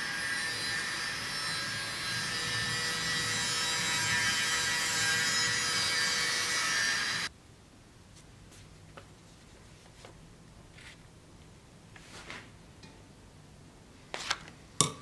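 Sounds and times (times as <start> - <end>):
workshop machine running with hiss: 0.0 - 7.3.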